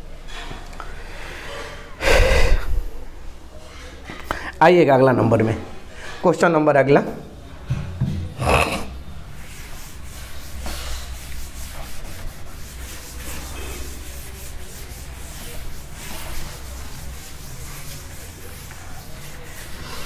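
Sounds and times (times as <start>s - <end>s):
duster wiping chalkboard: 9.4s - 20.0s.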